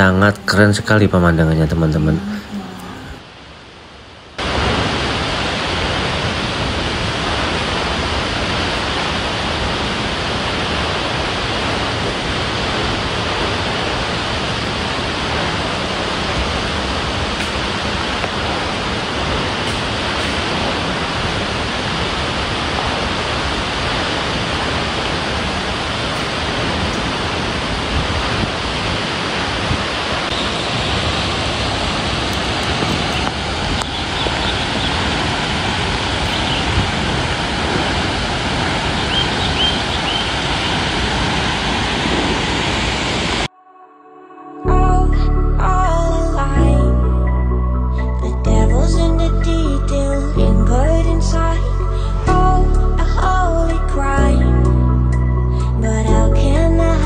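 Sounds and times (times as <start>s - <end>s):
waterfall roaring: 0.0s - 43.5s.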